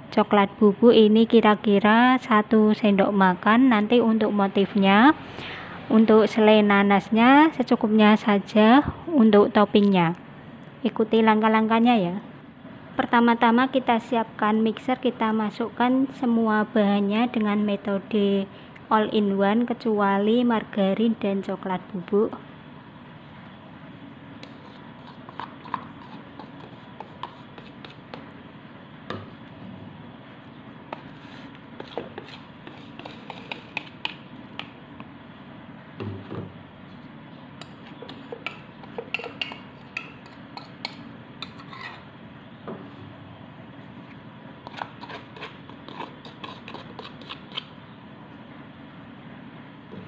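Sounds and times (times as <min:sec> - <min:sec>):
low background hum: 0:00.0 - 0:50.0
bowls and spoons clicking: 0:37.6 - 0:41.6.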